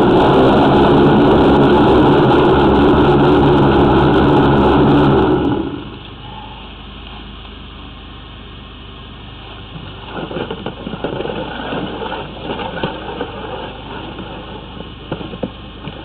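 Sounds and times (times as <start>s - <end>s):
rough irregular noise: 0.0s - 6.0s, 9.7s - 16.0s
engine running steadily: 0.0s - 16.0s.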